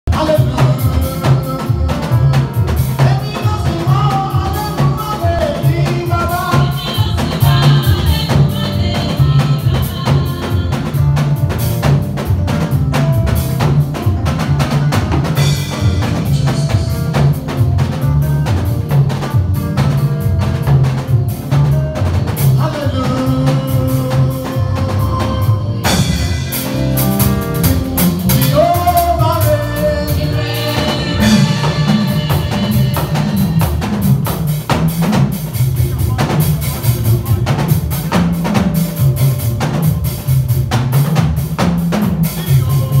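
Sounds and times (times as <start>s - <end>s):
man singing through microphone: 0.0s - 10.9s, 22.4s - 26.7s, 28.3s - 34.0s, 42.2s - 43.0s
bass: 0.0s - 43.0s
drum kit beat: 0.0s - 43.0s.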